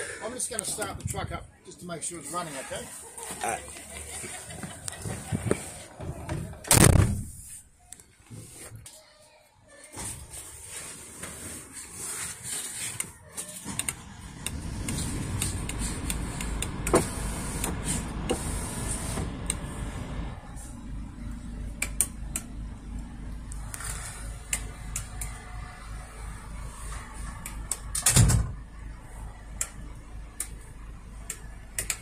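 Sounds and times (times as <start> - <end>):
truck engine starting and idling: 13.6 - 32.0.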